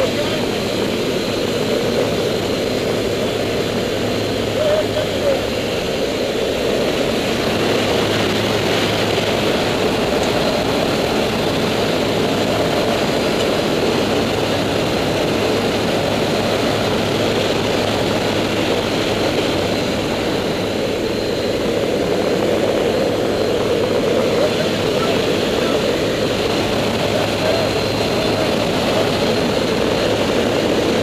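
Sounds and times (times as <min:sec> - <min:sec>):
turboprop engines droning: 0:00.0 - 0:31.0.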